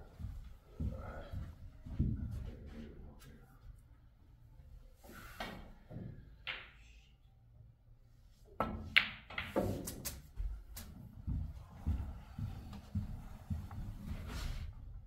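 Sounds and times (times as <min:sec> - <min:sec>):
snooker cue striking ball: 0:08.6 - 0:10.1.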